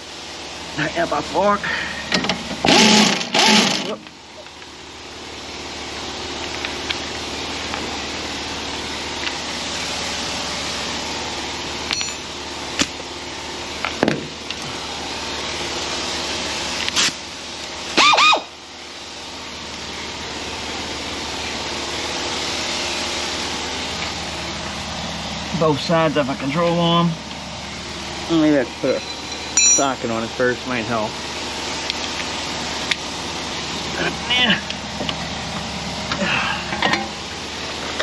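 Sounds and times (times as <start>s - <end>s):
power tool whirring: 2.1s - 4.0s.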